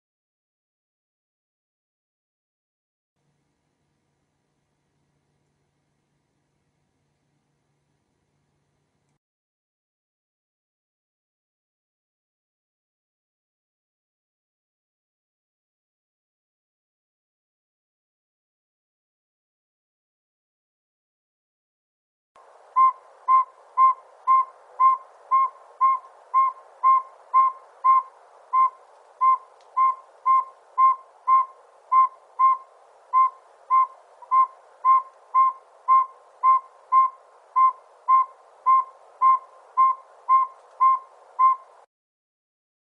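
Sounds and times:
faint background hiss: 3.2s - 9.2s, 22.4s - 41.9s
owl whistled toots: 22.7s - 41.8s.

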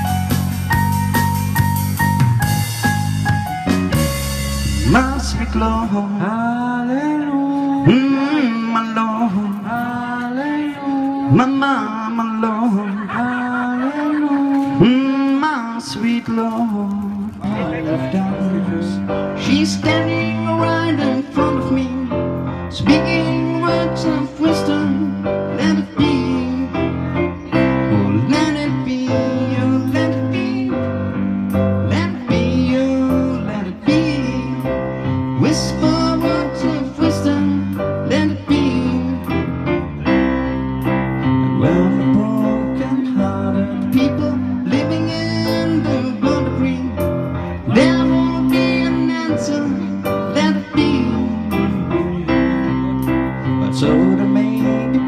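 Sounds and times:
steady drum beat: 0.0s - 5.8s
live band playing: 0.0s - 55.0s.

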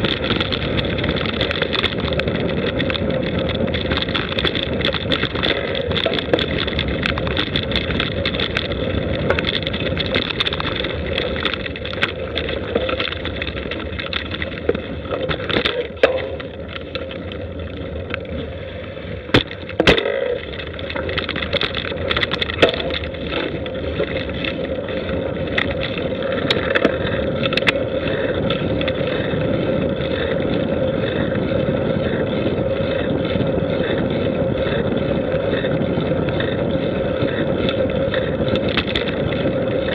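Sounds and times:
tyres rolling over dirt: 0.0s - 39.9s
wind on microphone: 0.0s - 39.9s.

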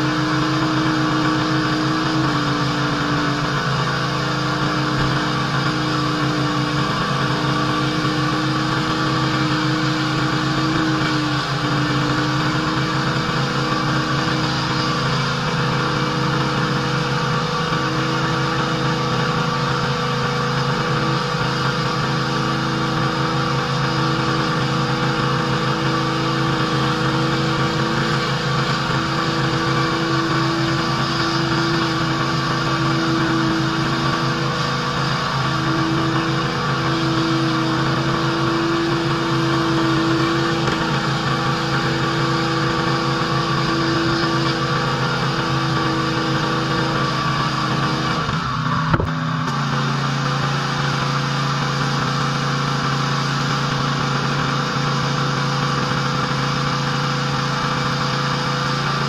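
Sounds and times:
pressure washer engine hum: 0.0s - 59.0s.

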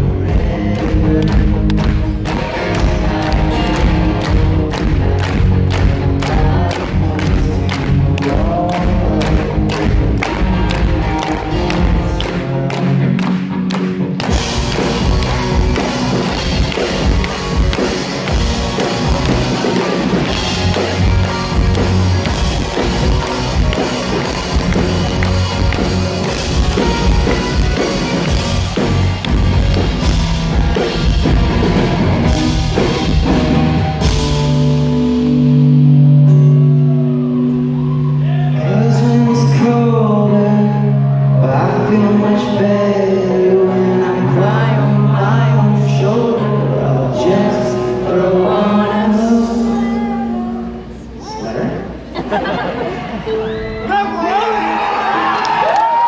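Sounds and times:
drum kit: 0.0s - 36.4s
live rock band playing: 0.0s - 51.2s
held electric guitar chords: 0.0s - 56.0s.

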